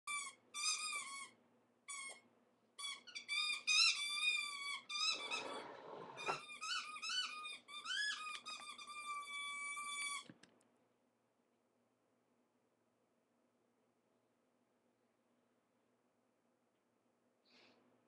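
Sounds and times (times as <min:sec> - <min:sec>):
squeaky toy squeaking: 0:00.1 - 0:02.2, 0:02.8 - 0:05.6, 0:06.2 - 0:10.3.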